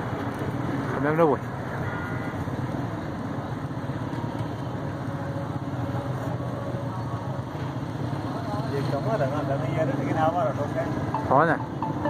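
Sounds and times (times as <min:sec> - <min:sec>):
steady engine rumble: 0:00.0 - 0:12.0.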